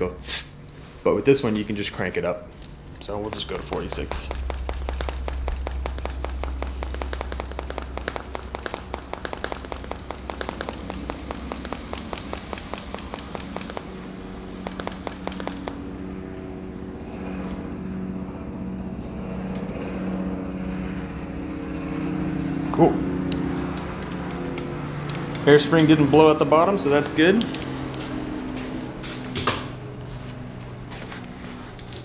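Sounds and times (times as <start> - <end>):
low steady hum: 0.0 - 32.0
hand pump clicking strokes: 3.3 - 13.9, 14.5 - 15.8.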